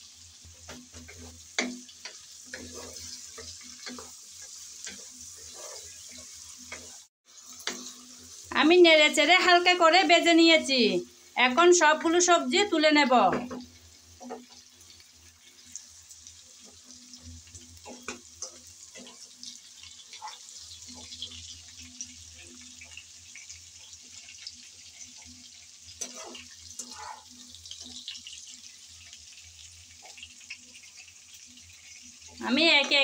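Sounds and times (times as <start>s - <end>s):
vegetables sizzling in oil: 0.0s - 33.0s
skimmer scraping pan: 0.7s - 8.0s, 26.0s - 27.4s.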